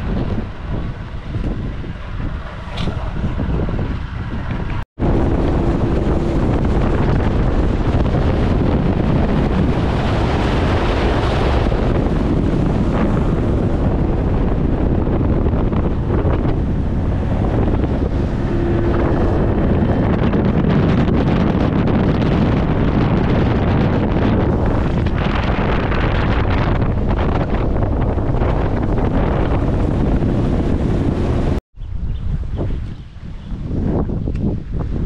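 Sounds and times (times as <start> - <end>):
wind buffeting microphone: 0.0 - 35.0
faint hum: 12.8 - 21.9.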